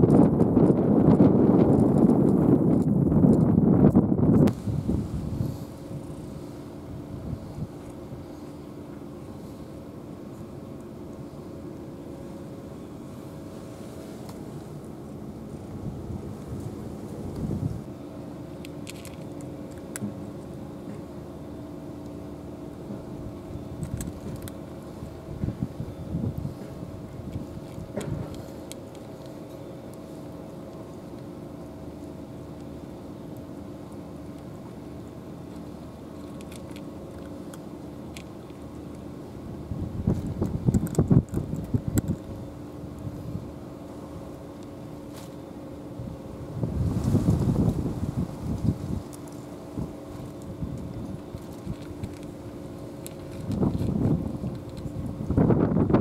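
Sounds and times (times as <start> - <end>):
steady low hum: 0.0 - 56.0
cat chewing and licking: 26.3 - 44.0, 47.6 - 55.4.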